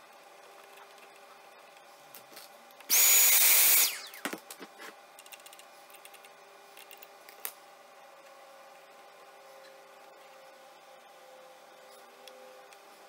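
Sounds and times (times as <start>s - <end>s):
small electric motor whining: 2.9s - 4.4s.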